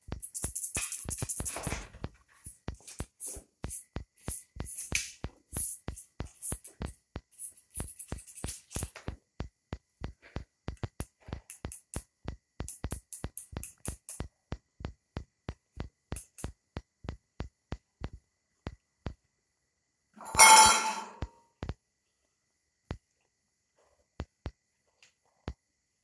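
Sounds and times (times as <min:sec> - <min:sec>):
drum machine beat music: 0:00.0 - 0:19.2.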